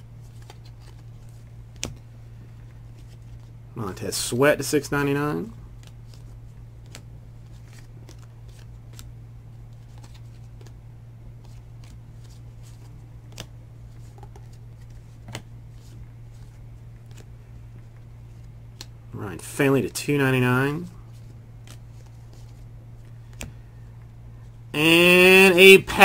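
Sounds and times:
steady low hum: 0.0 - 26.0
trading cards flipping and clicking: 0.2 - 3.5, 5.7 - 10.8, 11.4 - 19.0, 21.1 - 24.1.

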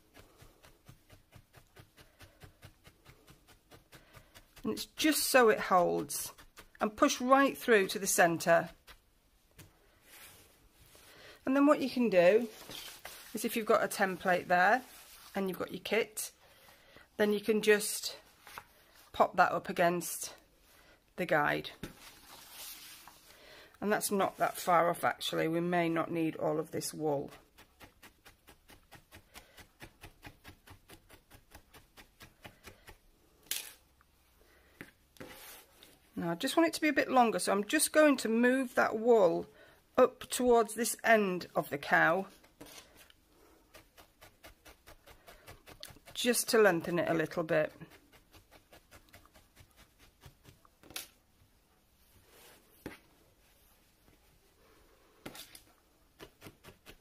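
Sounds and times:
felting needle stabbing wool: 0.0 - 10.3, 24.0 - 33.8, 41.4 - 51.3, 55.2 - 57.0
wool rustling on a mat: 0.0 - 15.8, 21.7 - 23.4, 35.2 - 36.2, 51.7 - 54.6.

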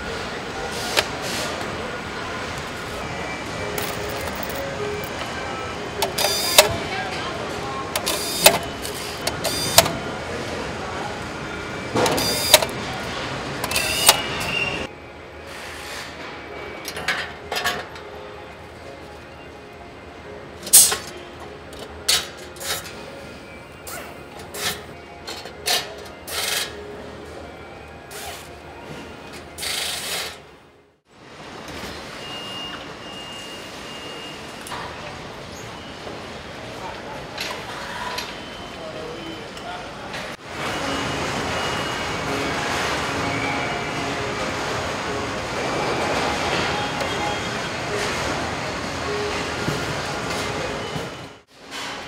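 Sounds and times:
assembly plant machinery noise: 0.0 - 52.0
steady factory hum: 0.0 - 52.0
metal parts and tools clicking: 3.8 - 4.6.

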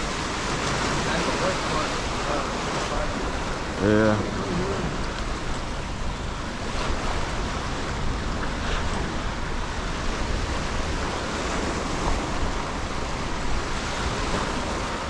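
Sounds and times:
surf washing against rocks: 0.0 - 15.0
wind on the microphone: 0.0 - 15.0.

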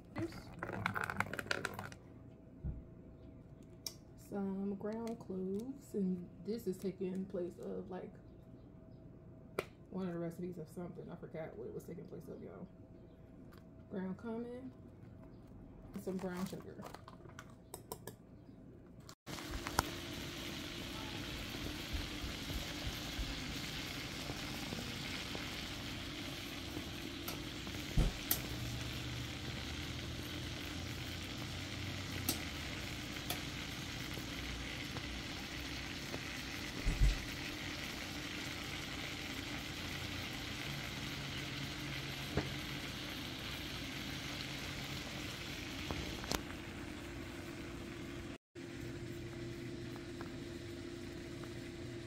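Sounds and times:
meat sizzling in a pan: 19.3 - 46.8.

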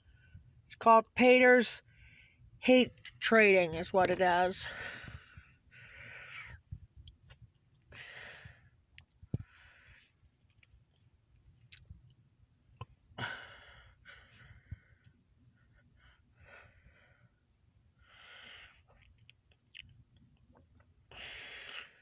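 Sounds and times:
faint breathing: 1.8 - 2.5, 4.6 - 6.6, 7.9 - 10.2, 13.2 - 17.4, 18.0 - 19.0, 21.1 - 22.0.

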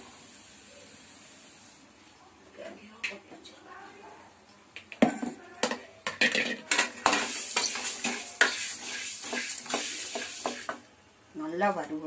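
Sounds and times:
sizzling hiss: 0.0 - 2.1, 6.2 - 11.0
spoon scraping a pan: 5.6 - 10.8.

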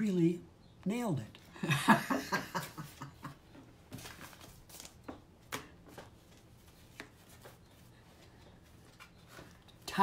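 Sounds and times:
paper cards rustling: 3.9 - 10.0.

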